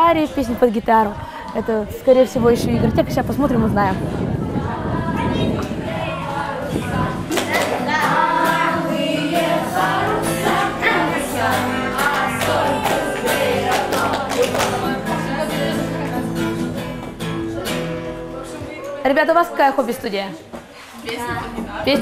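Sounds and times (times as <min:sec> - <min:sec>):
children singing: 0:04.4 - 0:16.4
strummed acoustic guitar: 0:05.7 - 0:18.7.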